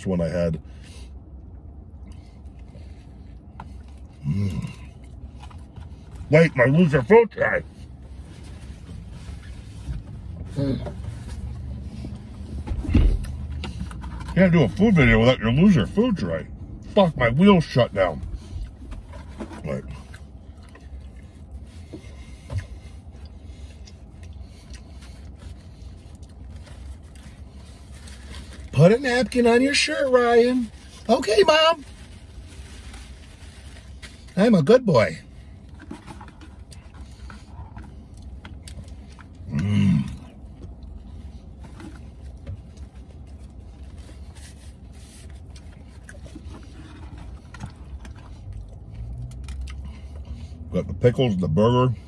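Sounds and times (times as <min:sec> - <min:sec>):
steady low rumble: 0:00.0 - 0:52.0
man chewing food: 0:01.2 - 0:06.2, 0:18.5 - 0:28.7, 0:35.5 - 0:50.7.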